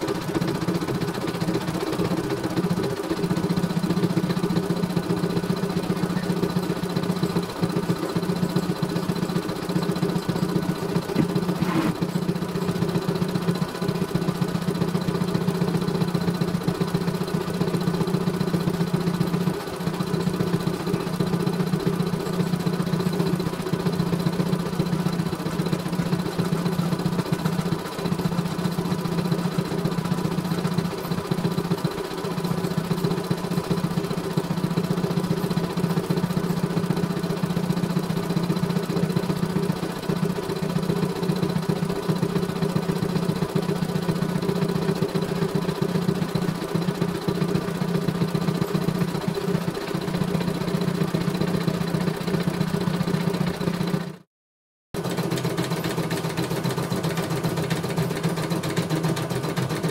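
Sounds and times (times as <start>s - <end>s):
motor hum: 0.0s - 31.7s
embroidery machine needle chatter: 0.0s - 54.1s.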